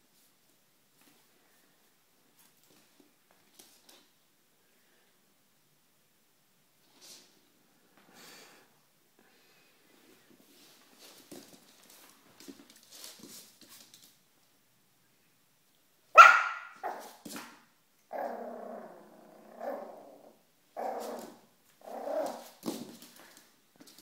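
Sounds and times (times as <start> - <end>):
puppy barking: 16.2 - 17.2
puppy growling and yapping: 16.8 - 17.5, 18.1 - 22.6.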